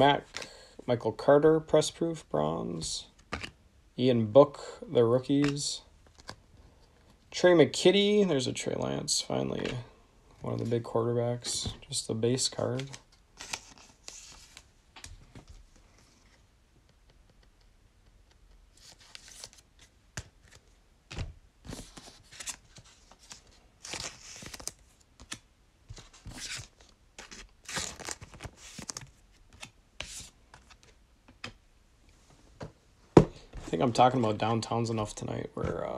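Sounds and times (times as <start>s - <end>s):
packaging tearing and crinkling: 26.3s - 29.1s.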